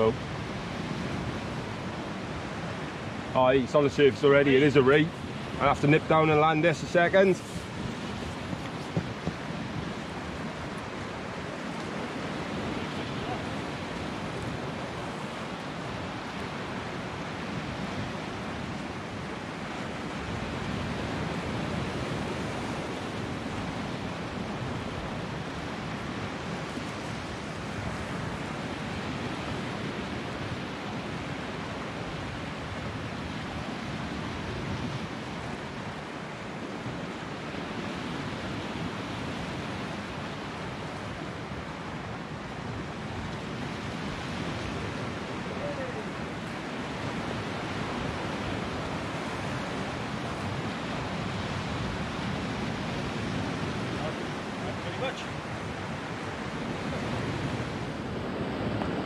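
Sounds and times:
sea surf breaking over rocks: 0:00.0 - 0:59.0.

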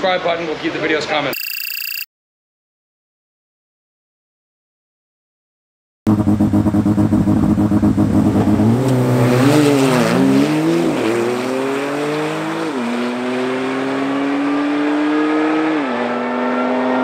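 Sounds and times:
car engines at full throttle: 0:06.1 - 0:17.0.

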